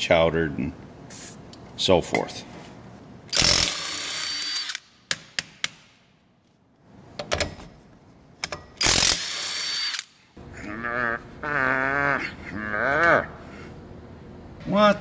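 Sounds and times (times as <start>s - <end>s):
impact wrench whining: 3.3s - 5.9s, 8.4s - 10.2s.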